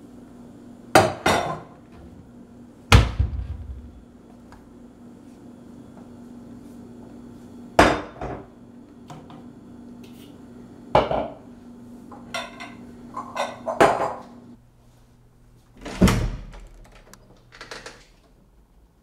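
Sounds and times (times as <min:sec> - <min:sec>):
dishes knocking on countertop: 0:01.0 - 0:01.7, 0:07.8 - 0:08.5, 0:11.0 - 0:11.4, 0:13.7 - 0:14.2
steady low hum: 0:01.6 - 0:13.3.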